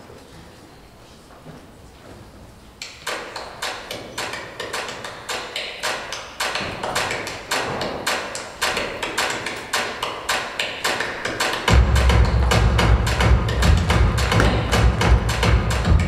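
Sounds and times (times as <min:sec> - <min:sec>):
sharp dry percussive strikes: 0:11.6 - 0:16.0
music with heavy bass: 0:11.7 - 0:16.0.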